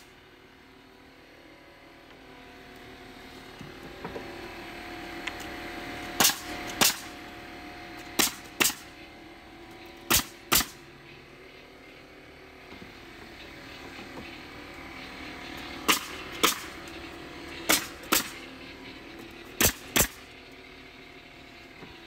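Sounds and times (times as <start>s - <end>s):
steady hum: 0.0s - 22.0s
nail gun shots: 6.2s - 7.1s, 8.2s - 8.9s, 10.1s - 10.8s, 15.9s - 16.7s, 17.7s - 18.4s, 19.6s - 20.2s.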